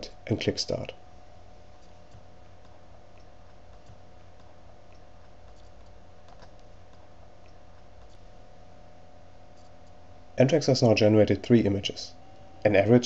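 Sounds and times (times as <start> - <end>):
background hiss: 0.0 - 13.0
low hum: 0.0 - 13.0
keyboard typing clicks: 2.1 - 8.2.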